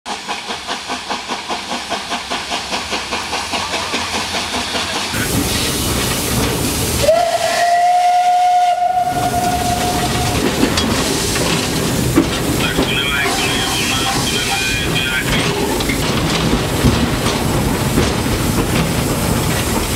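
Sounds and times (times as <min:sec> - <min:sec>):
locomotive cab hiss and rumble: 0:00.1 - 0:19.9
steam locomotive exhaust beats: 0:00.1 - 0:19.9
steam whistle: 0:07.0 - 0:10.4.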